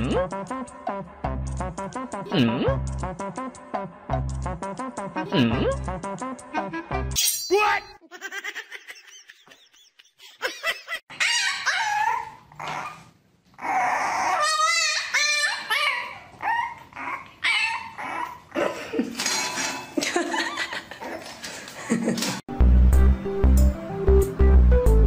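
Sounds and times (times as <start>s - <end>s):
puppy yapping and whining: 11.1s - 18.6s.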